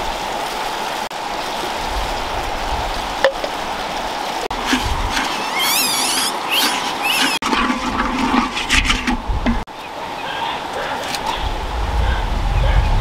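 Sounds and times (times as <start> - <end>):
wooden stick scraping salt in wok: 4.5 - 9.2
high chirping calls: 5.3 - 7.4.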